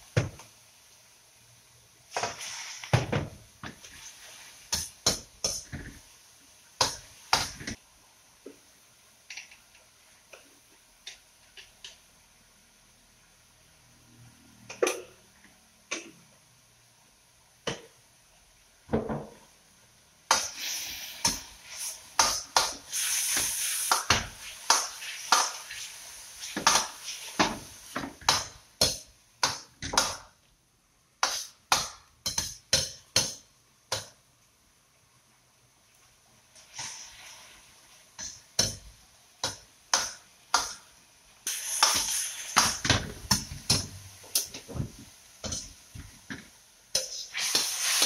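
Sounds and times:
food sizzling in wok: 0:02.0 - 0:07.8, 0:20.3 - 0:29.1, 0:36.5 - 0:48.0.

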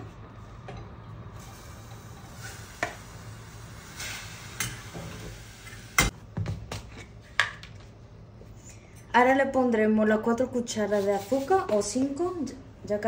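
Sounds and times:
apple sizzling in saucepan: 0:01.3 - 0:06.1.

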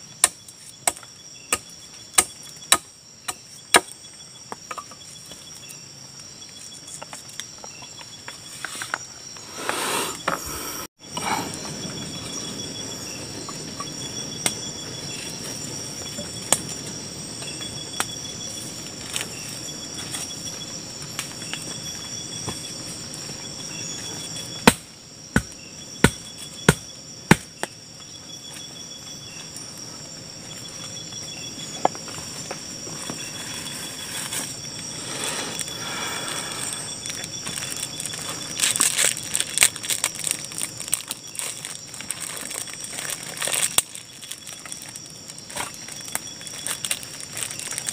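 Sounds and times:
crickets chirping: 0:00.0 - 0:47.9
pulsing insect chirp: 0:00.0 - 0:47.9
crinkly rustling: 0:37.0 - 0:47.9.

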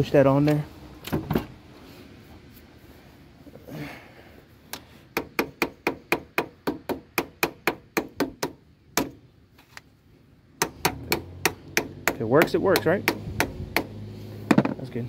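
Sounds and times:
sharp metal tapping: 0:10.6 - 0:13.9.

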